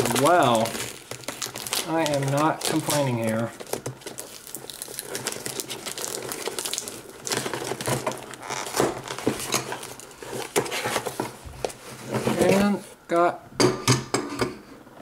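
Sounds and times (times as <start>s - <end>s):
packing tape tearing: 0.0s - 11.8s
cardboard and plastic rustling: 0.0s - 13.0s.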